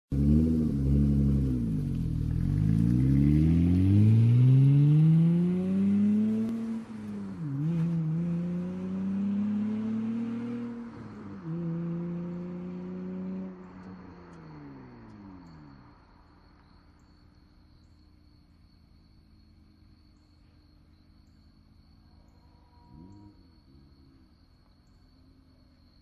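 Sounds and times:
car engine accelerating: 0:00.0 - 0:26.0.

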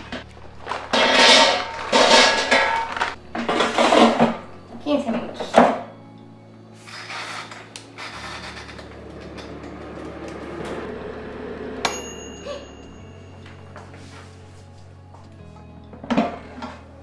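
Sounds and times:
air fryer fan humming: 0:00.0 - 0:16.2.

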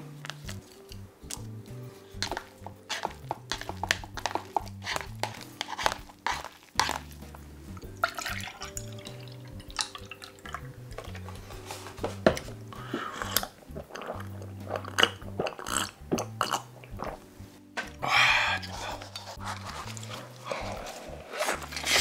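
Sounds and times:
background music: 0:00.0 - 0:22.0
chopsticks clicking on paper cup: 0:02.2 - 0:07.0
wet squishing: 0:02.2 - 0:11.4, 0:12.7 - 0:17.3
milk pouring into a glass: 0:08.0 - 0:11.2.

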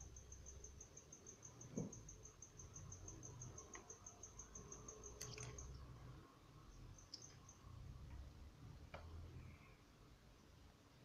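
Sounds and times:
cricket chirping: 0:00.0 - 0:08.3.

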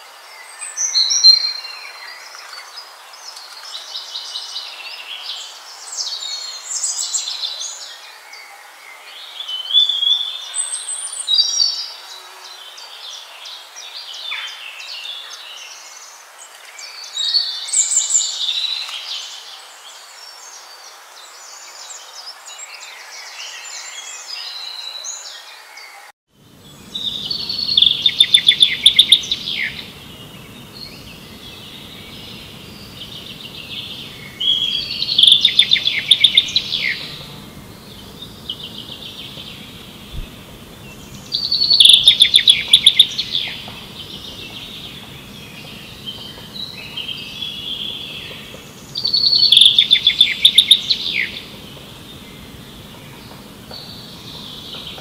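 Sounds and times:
low steady background noise: 0:00.0 - 0:55.0
small birds chirping: 0:00.0 - 0:55.0
loud rapid bird trills: 0:26.5 - 0:55.0.

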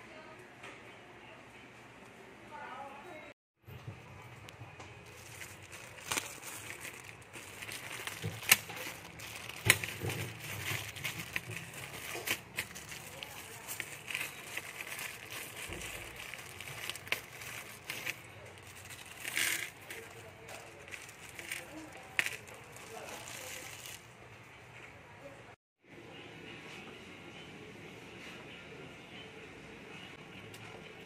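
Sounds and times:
plastic bags crinkling: 0:05.0 - 0:24.1.

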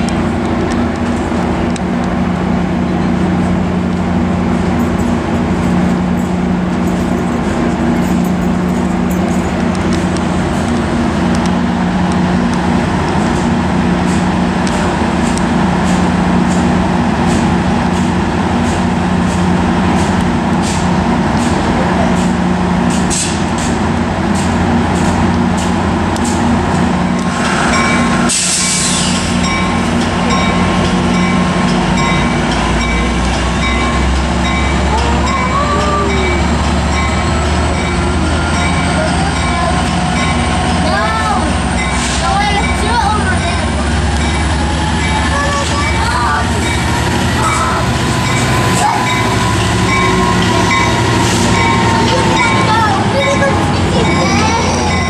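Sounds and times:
locomotive engine drone: 0:00.0 - 0:55.0
air hiss: 0:27.2 - 0:29.4.

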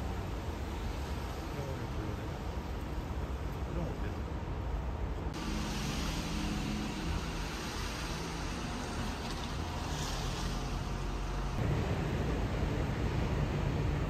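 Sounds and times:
passing traffic rumble: 0:00.0 - 0:14.0.

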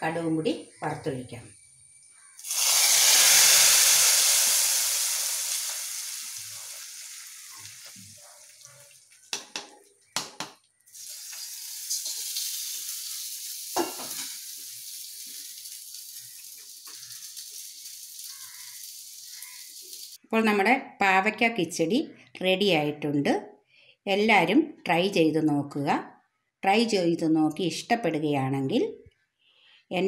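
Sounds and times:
hot oil sizzling: 0:02.4 - 0:09.7, 0:10.9 - 0:20.2.

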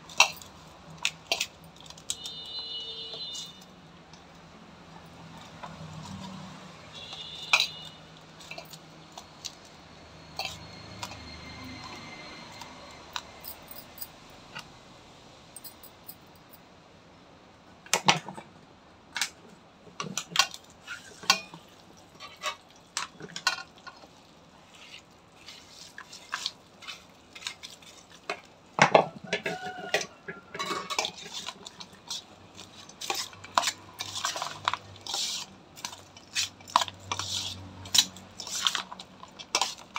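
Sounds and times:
bangles clinking on steel bowl: 0:00.1 - 0:02.5, 0:06.9 - 0:09.2, 0:10.3 - 0:14.3, 0:15.6 - 0:16.5
rice mixed by hand: 0:23.7 - 0:28.8, 0:30.7 - 0:39.9.

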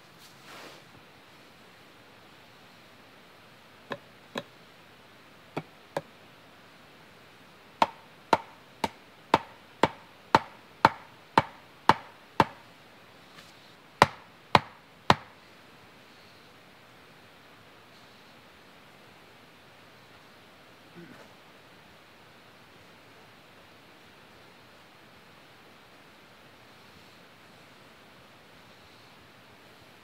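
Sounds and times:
hand tool striking wood: 0:03.9 - 0:04.5, 0:07.8 - 0:12.6, 0:14.0 - 0:15.3.

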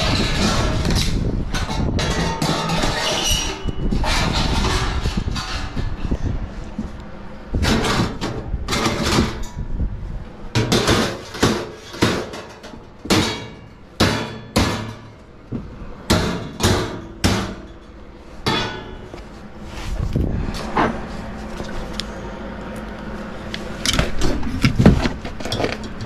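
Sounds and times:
hammer striking sheet metal: 0:13.1 - 0:15.2, 0:16.1 - 0:17.8, 0:18.4 - 0:19.0.

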